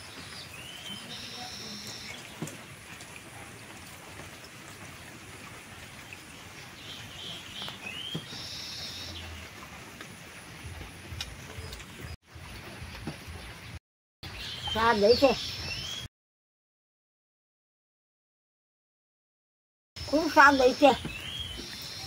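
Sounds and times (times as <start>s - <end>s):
steady rain falling: 0.0s - 13.8s, 20.0s - 22.0s.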